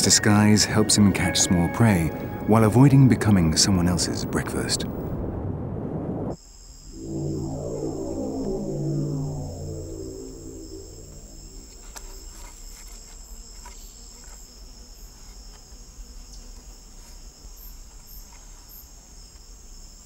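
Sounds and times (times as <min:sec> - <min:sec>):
music: 0:00.0 - 0:04.0, 0:07.0 - 0:11.8
insects trilling: 0:07.0 - 0:20.0.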